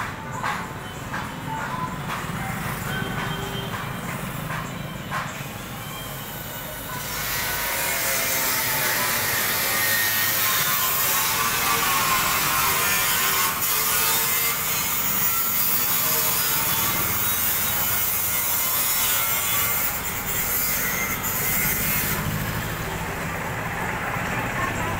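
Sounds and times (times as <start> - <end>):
power tool grinding metal: 6.2 - 23.2.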